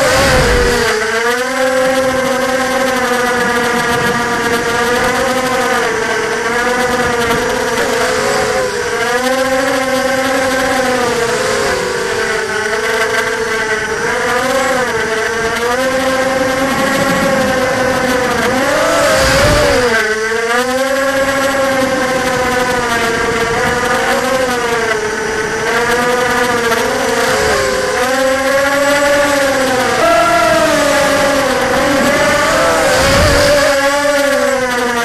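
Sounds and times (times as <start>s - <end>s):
quadcopter motors whining: 0.0s - 35.0s.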